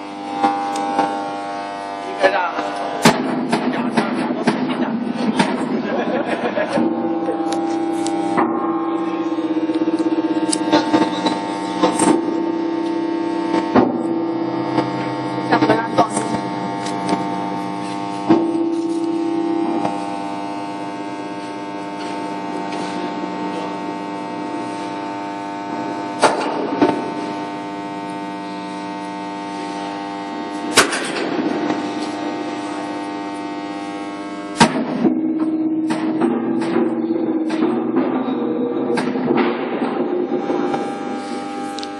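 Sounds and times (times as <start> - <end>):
electric machine hum: 0.0 - 41.9
sharp metallic knocks: 34.6 - 41.0.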